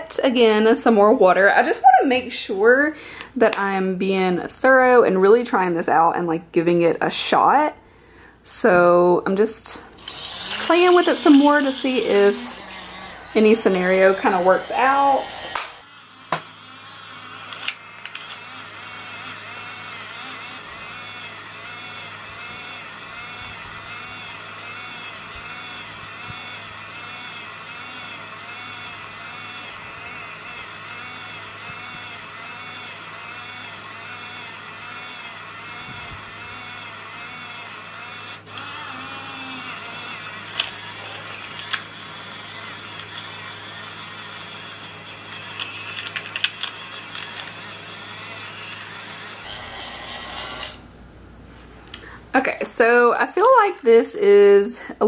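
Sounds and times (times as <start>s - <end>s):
toy washing machine motor whining: 10.0s - 50.8s.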